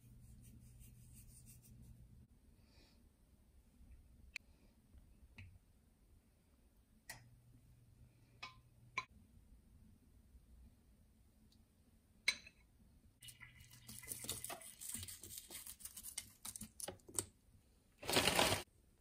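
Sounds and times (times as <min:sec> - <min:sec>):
crisps crumbling by hand: 0:18.0 - 0:18.6.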